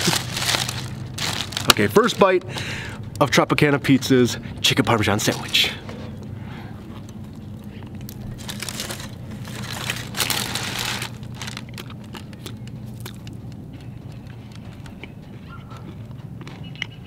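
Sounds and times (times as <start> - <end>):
steady low hum: 0.0 - 17.0
person chewing food: 6.2 - 17.0.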